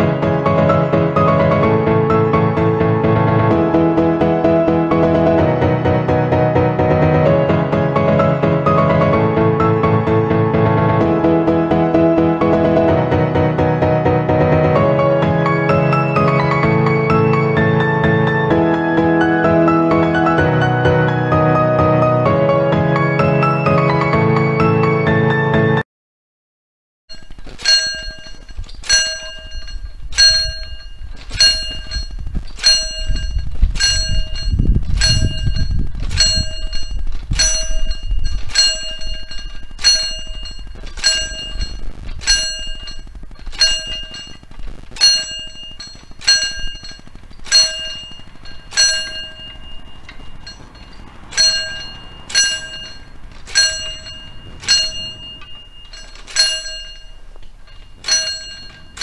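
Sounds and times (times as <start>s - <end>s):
level crossing bell ringing: 27.1s - 59.0s.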